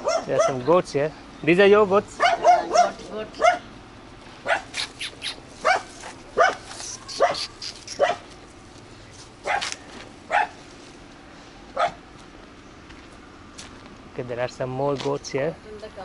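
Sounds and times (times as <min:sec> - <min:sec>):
dog barking: 0:00.0 - 0:00.7, 0:02.2 - 0:03.7, 0:04.4 - 0:05.0, 0:05.6 - 0:08.3, 0:09.4 - 0:10.6, 0:11.8 - 0:12.0.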